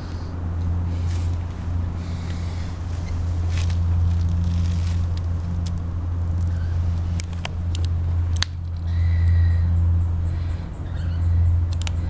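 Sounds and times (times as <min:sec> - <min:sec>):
steady low rumble: 0:00.0 - 0:12.0.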